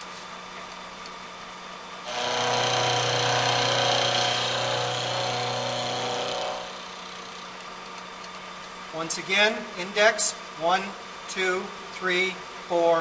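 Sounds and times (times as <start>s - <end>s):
milling machine grinding: 2.0s - 7.6s.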